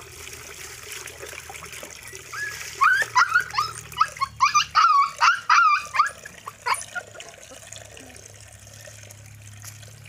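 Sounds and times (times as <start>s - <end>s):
puppy whining and yelping: 2.2s - 7.6s.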